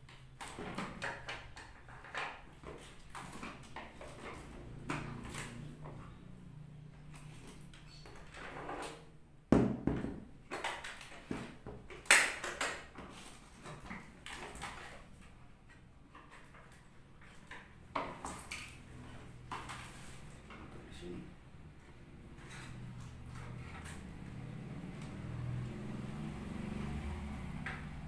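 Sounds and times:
plastic knocks and rattles: 0.1s - 6.0s, 9.5s - 15.2s.

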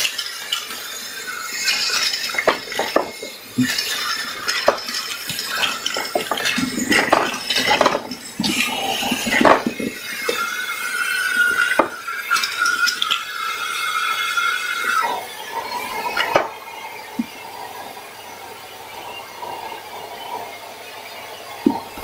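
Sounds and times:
vacuum cleaner sucking: 0.0s - 13.6s.

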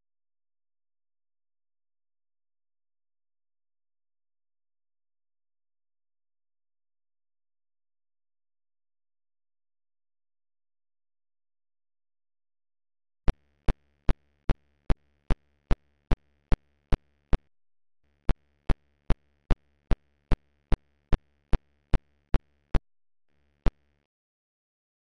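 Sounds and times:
sharp electronic ticks: 13.3s - 17.5s, 18.1s - 22.8s, 23.6s - 24.0s.

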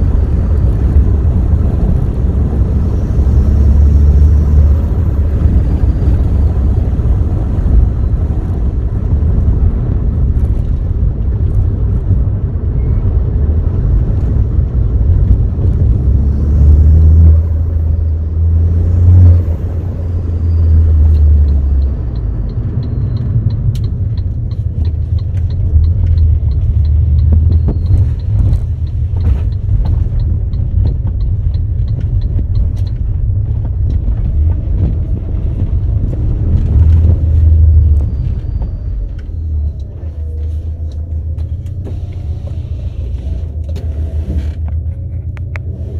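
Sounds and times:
car engine and road rumble: 0.0s - 45.9s
light regular ticking: 21.1s - 36.2s.

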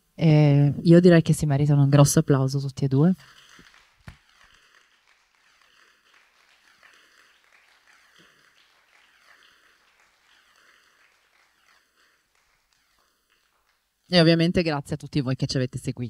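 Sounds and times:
faint audience applause: 3.2s - 14.1s.

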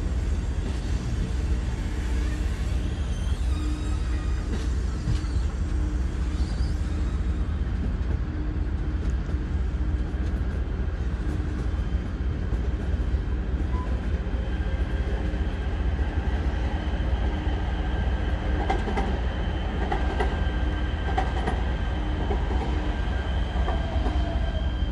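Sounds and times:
train wheels rumbling on track: 0.0s - 24.9s
wheel squeal: 1.7s - 7.6s.

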